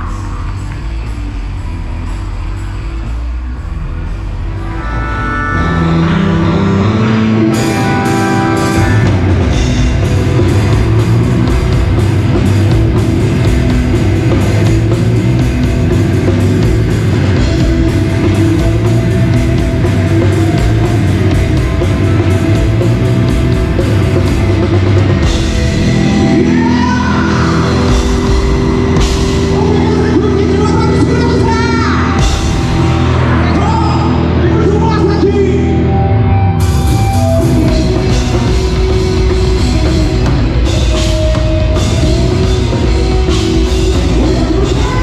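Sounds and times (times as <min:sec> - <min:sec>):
rock band playing live: 0:00.0 - 0:45.0
person singing: 0:42.0 - 0:45.0.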